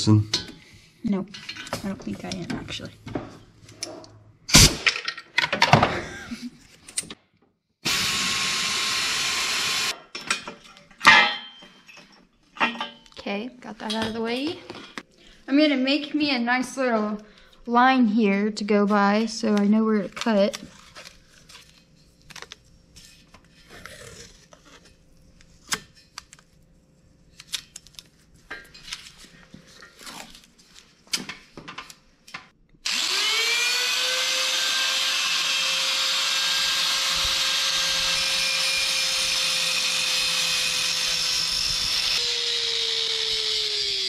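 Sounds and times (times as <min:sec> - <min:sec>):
angle grinder whining: 0:07.8 - 0:10.0, 0:32.8 - 0:44.0.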